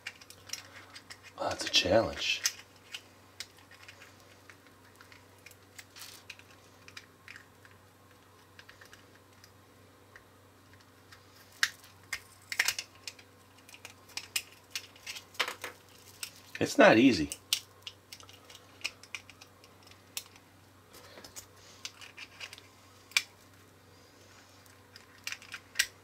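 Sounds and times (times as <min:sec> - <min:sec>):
plastic clicks and scrapes: 0:21.2 - 0:23.3, 0:24.6 - 0:26.0.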